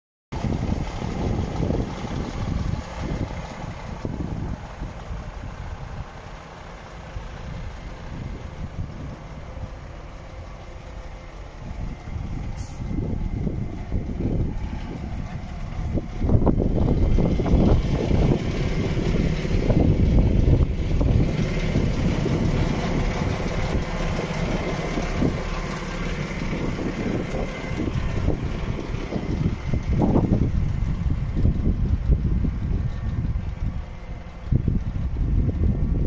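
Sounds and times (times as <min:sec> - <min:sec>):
diesel engine idling: 0:00.3 - 0:36.0
wind on microphone: 0:00.4 - 0:06.2, 0:11.6 - 0:25.6, 0:26.2 - 0:36.0.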